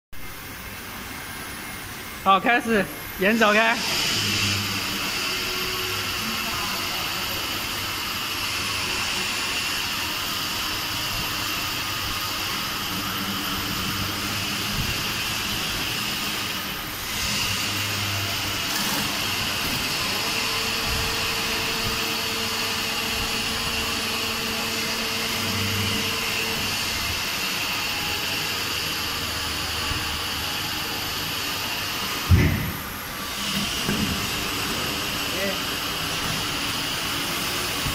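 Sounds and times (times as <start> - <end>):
press hissing and whining: 0.2 - 37.9.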